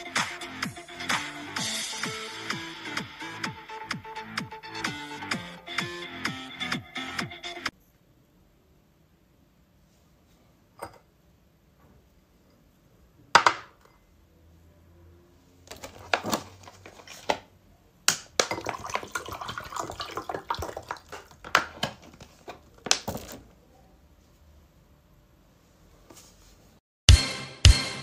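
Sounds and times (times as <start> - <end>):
water pouring into glass: 18.4 - 21.4.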